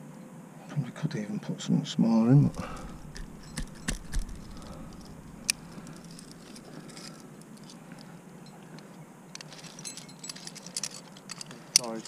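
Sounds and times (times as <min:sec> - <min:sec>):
climbing hardware clinking: 0:02.5 - 0:07.8, 0:09.4 - 0:12.0.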